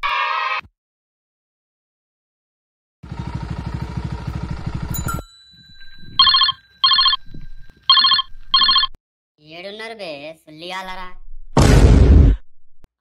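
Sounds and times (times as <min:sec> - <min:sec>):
motorcycle engine running: 0:03.0 - 0:05.2
telephone ringing: 0:05.0 - 0:09.0.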